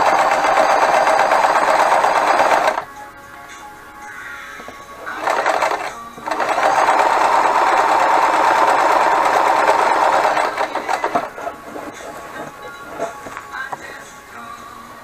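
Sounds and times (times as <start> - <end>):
sewing machine stitching: 0.0 - 2.9, 5.0 - 13.3.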